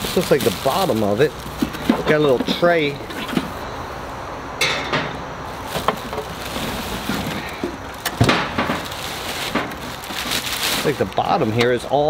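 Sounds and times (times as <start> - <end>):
plastic wrapping crinkling: 0.0 - 3.6, 5.5 - 11.9
parts knocking: 4.6 - 10.1.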